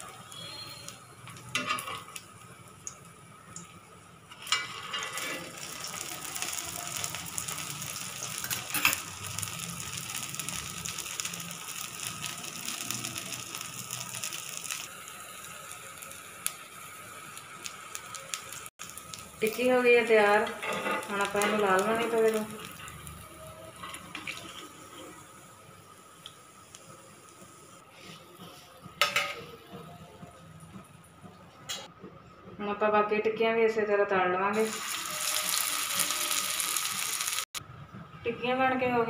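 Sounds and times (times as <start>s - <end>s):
oil sizzling and crackling: 0.0s - 31.9s, 34.5s - 37.6s.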